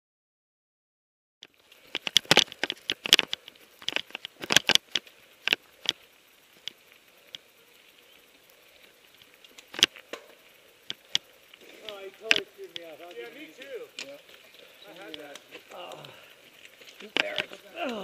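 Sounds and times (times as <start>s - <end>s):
faint steady hiss: 1.4s - 18.0s
camera rattling in mount: 1.9s - 6.0s.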